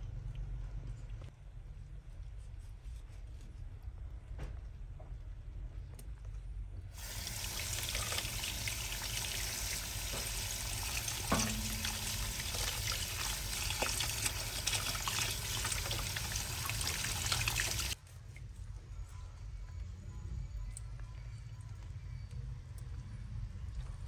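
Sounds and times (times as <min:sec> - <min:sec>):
tap water running into basin: 0:07.0 - 0:18.0
knock: 0:11.3 - 0:12.4.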